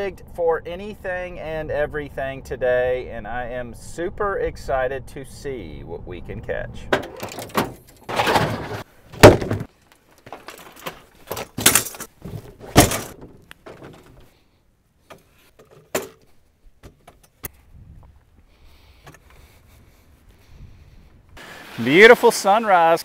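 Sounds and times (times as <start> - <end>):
heavy plastic cooler thunk: 6.9 - 9.7, 11.3 - 14.2
fishing gear knocking and clattering: 7.0 - 14.3.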